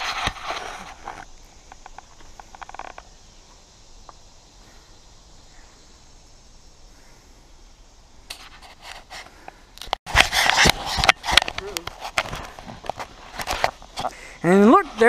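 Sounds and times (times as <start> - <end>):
steady outdoor hiss: 0.0 - 15.0
rustling and handling noises: 8.3 - 14.1.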